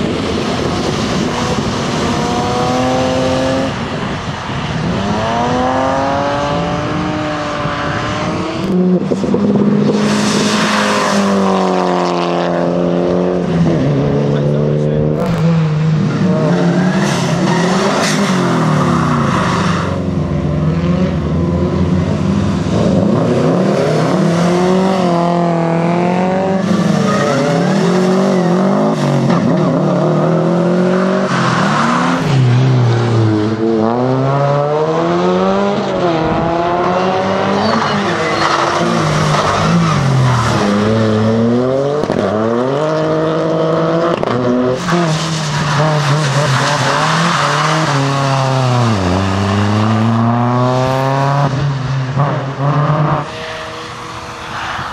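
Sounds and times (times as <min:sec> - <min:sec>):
rally car engines revving: 0:00.0 - 0:54.9
tyres squealing on wet tarmac: 0:26.6 - 0:28.9, 0:44.8 - 0:49.0.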